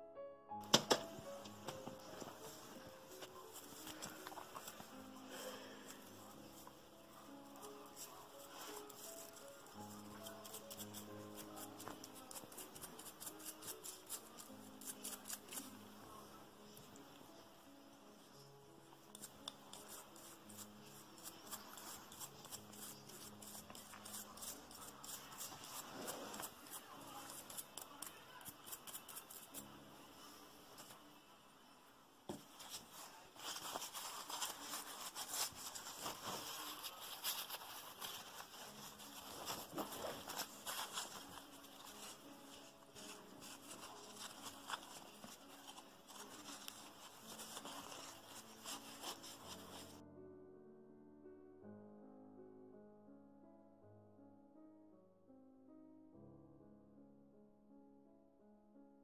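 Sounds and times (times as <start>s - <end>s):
toothbrush scrubbing steel: 7.7s - 15.8s, 19.1s - 29.7s
paper towel rubbing metal: 32.6s - 50.0s.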